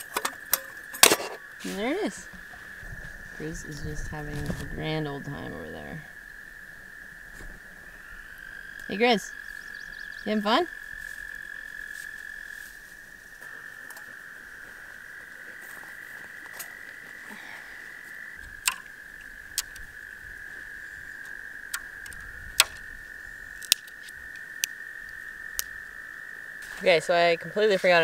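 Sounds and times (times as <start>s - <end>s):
frog chorus trilling: 0.0s - 28.0s
dry twigs snapping: 18.4s - 20.0s, 21.2s - 22.9s, 23.5s - 25.8s.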